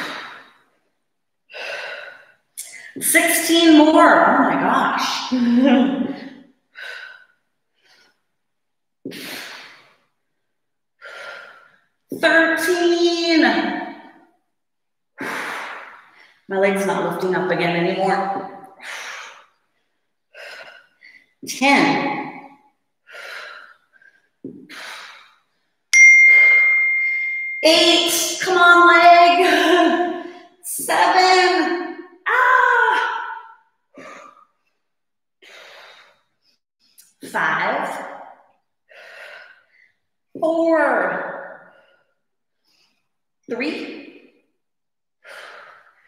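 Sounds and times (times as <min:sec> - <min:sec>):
bright ding: 0:26.0 - 0:27.8.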